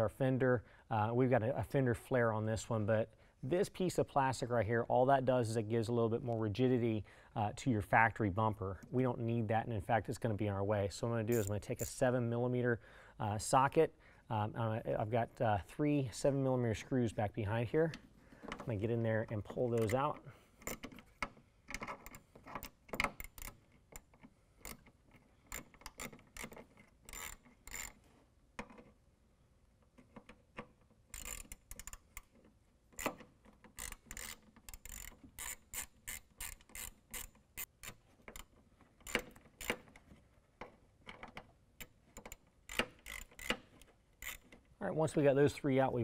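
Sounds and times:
hand socket ratchet clicking: 0:11.3 - 0:11.6, 0:21.7 - 0:28.0, 0:31.1 - 0:32.3, 0:33.0 - 0:40.0, 0:41.1 - 0:44.6.

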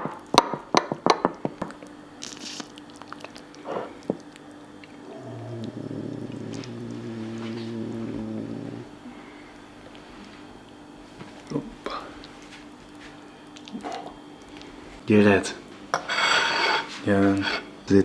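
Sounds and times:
steady low hum: 0:01.3 - 0:18.0.

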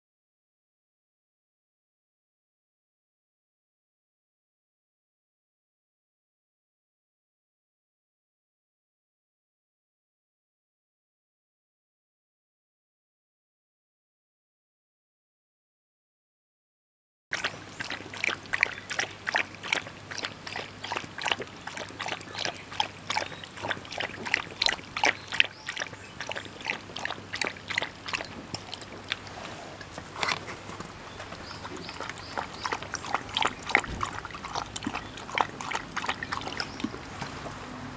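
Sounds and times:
dog lapping water from metal bowl: 0:17.3 - 0:37.6.

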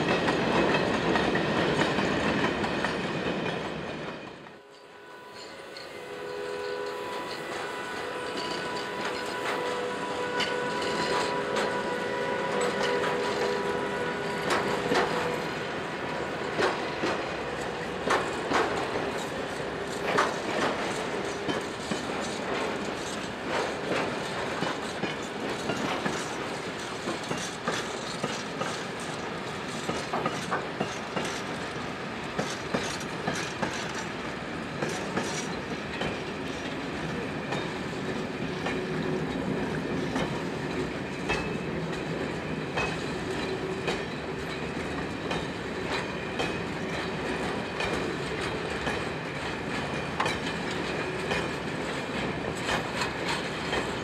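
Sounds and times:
train wheels rumbling on rails: 0:00.0 - 0:54.0
wheels clicking over rail joints: 0:16.5 - 0:34.2, 0:34.8 - 0:54.0.

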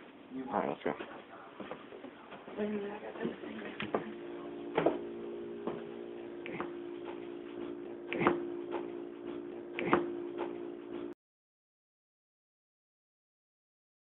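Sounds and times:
electrical hum: 0:00.0 - 0:11.2.

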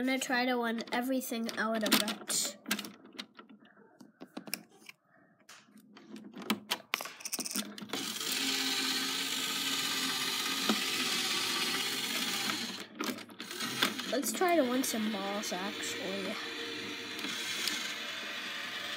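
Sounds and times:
small electric motor whirring: 0:07.9 - 0:18.9.

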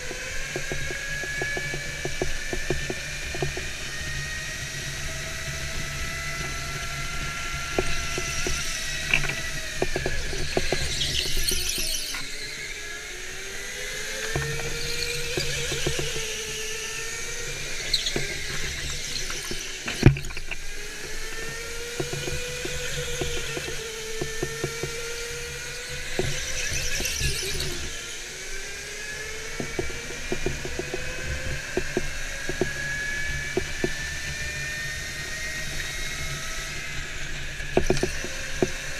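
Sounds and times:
electric motor whining: 0:00.0 - 0:38.9
tyres squealing on concrete: 0:10.1 - 0:12.6, 0:17.8 - 0:20.5.

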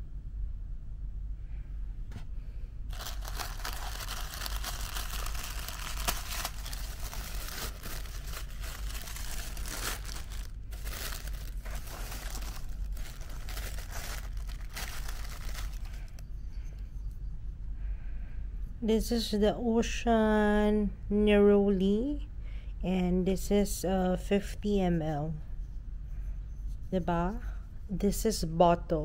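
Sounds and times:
paper packaging crinkling: 0:02.9 - 0:16.2.

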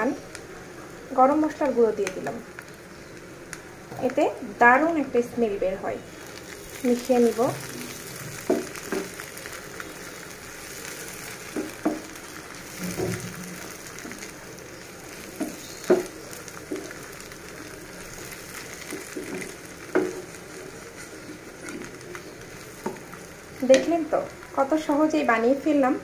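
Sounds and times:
meat sizzling in oil in a pan: 0:00.0 - 0:26.0
spatula scraping and knocking pan: 0:08.3 - 0:09.2, 0:10.9 - 0:24.0.

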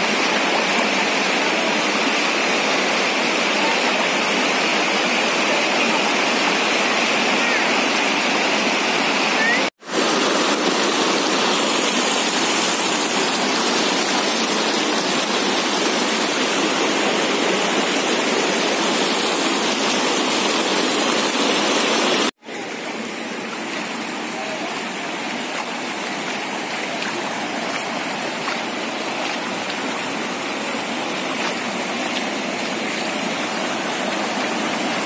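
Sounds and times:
floodwater rushing: 0:00.0 - 0:35.0.

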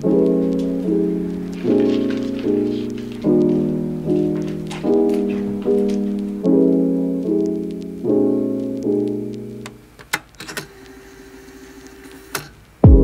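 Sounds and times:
soft piano chords: 0:00.0 - 0:10.0.

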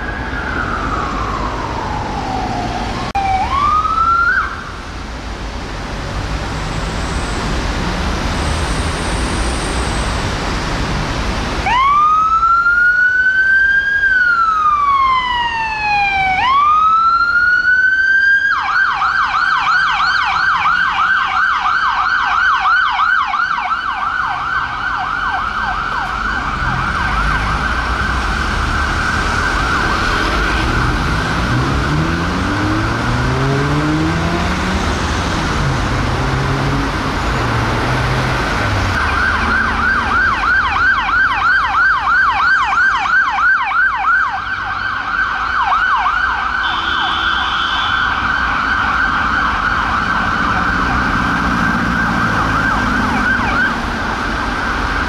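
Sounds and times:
ambulance siren yelp: 0:00.0 - 0:04.8, 0:11.6 - 0:36.8, 0:38.8 - 0:55.0
vehicle engine pulling away: 0:26.3 - 0:41.0.

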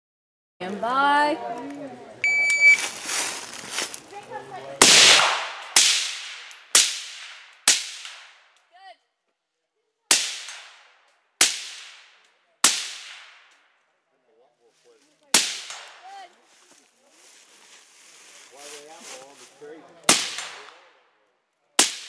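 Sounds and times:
rifle shots with echo: 0:04.8 - 0:08.5, 0:10.1 - 0:13.5, 0:15.3 - 0:16.1, 0:20.1 - 0:21.0, 0:21.8 - 0:22.0.

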